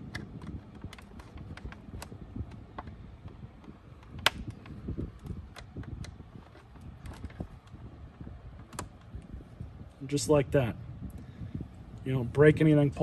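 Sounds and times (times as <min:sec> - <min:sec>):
screwdriver scraping plastic: 0:00.0 - 0:09.2
handling rustle: 0:00.0 - 0:10.0.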